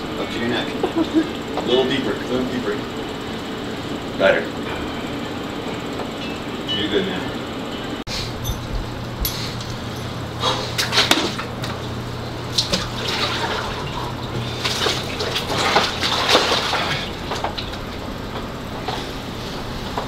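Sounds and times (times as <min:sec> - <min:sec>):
steady low hum: 0:00.0 - 0:20.0
water sloshing and splashing: 0:12.5 - 0:18.0.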